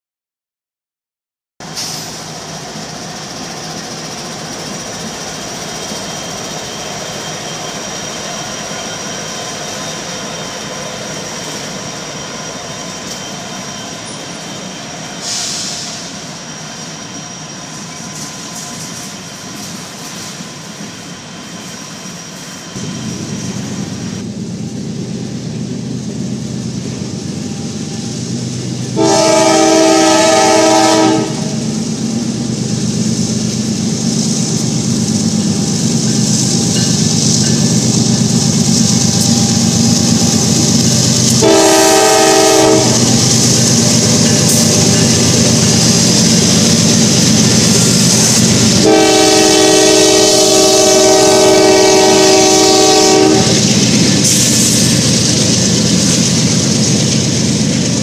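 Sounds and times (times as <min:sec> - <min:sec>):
diesel locomotives running: 0:01.6 - 0:58.0
freight cars rolling on rails: 0:01.6 - 0:58.0
locomotive horn: 0:28.9 - 0:31.7, 0:41.3 - 0:43.2, 0:48.6 - 0:53.7.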